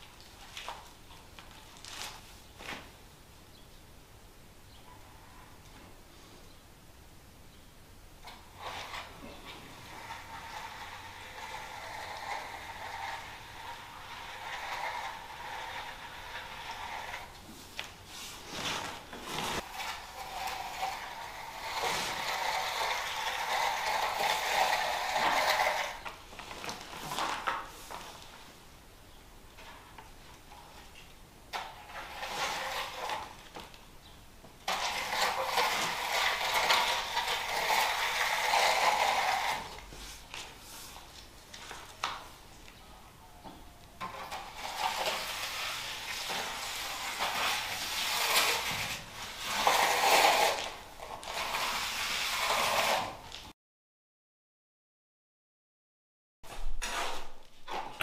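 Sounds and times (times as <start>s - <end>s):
concrete float scraping wet concrete: 8.2s - 27.8s, 31.6s - 33.5s, 34.6s - 42.2s, 44.0s - 53.4s, 56.7s - 57.4s.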